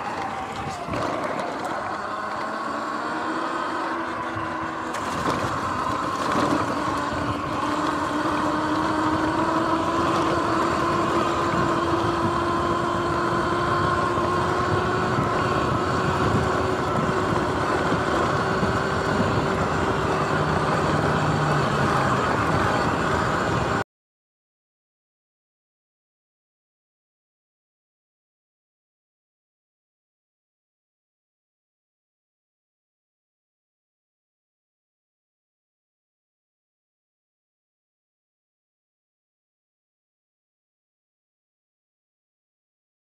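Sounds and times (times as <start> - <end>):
tyres rolling across grass: 0.0 - 2.5
electric dirt bike motor whining: 0.0 - 23.8.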